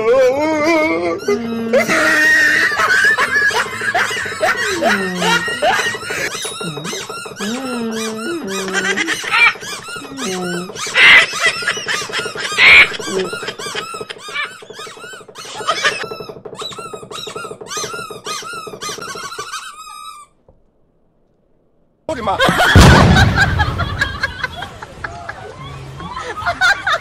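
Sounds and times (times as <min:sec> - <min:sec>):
cartoon birds chattering: 0:01.2 - 0:20.3
loud crash with deep thud: 0:22.6 - 0:24.2.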